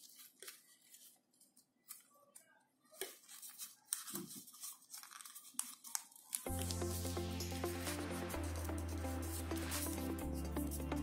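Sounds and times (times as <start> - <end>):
paper rustling and crinkling: 0.0 - 7.1.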